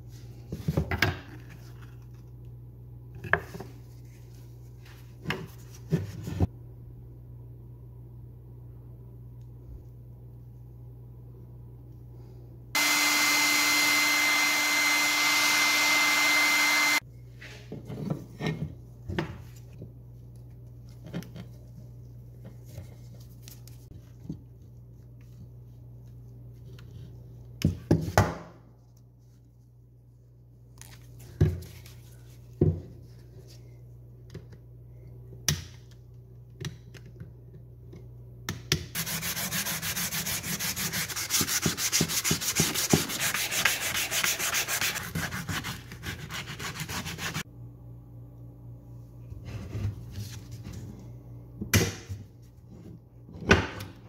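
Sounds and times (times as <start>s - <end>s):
hand sanding wood: 12.8s - 17.0s, 39.0s - 47.4s
small motor whirring: 12.8s - 17.0s.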